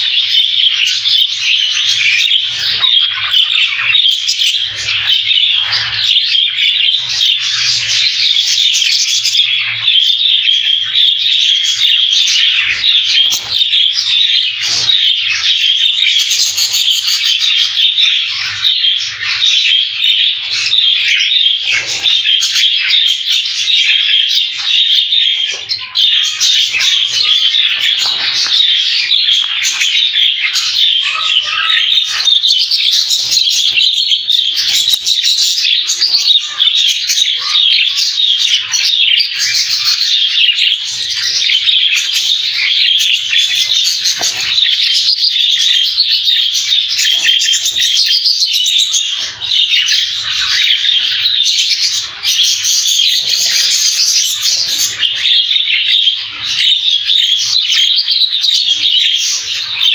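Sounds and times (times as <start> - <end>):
budgerigars chattering and chirping: 0.0 - 59.9.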